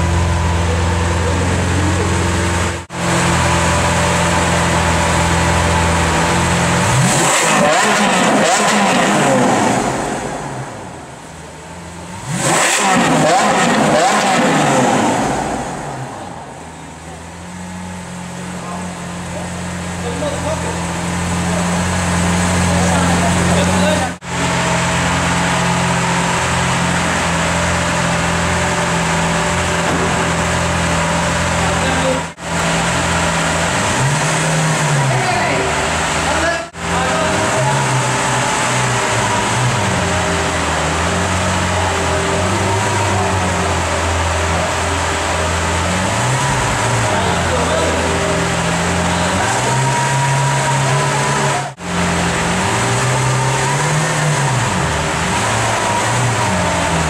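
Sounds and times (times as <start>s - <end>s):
sports car engine revving: 0.0s - 57.0s.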